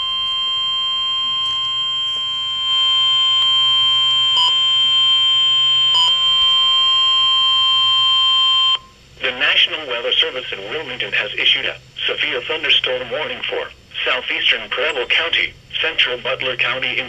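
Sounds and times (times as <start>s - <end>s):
steady high alarm tone: 0.0s - 9.0s.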